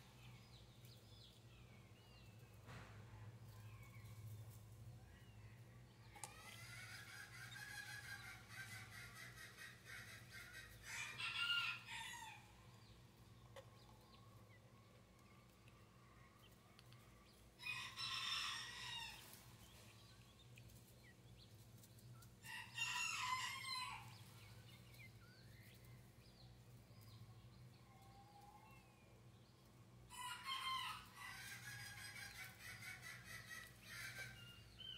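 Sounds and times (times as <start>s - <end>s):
low steady hum: 0.0s - 34.9s
faint rooster crowing: 10.9s - 12.6s, 17.6s - 19.4s, 22.4s - 24.2s.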